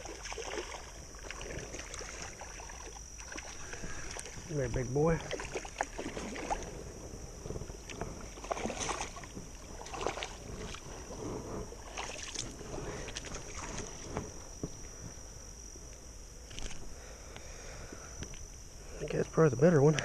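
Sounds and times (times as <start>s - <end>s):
fish thrashing in splashing water: 0.0s - 4.5s, 5.2s - 6.8s, 8.3s - 11.2s, 11.8s - 14.1s.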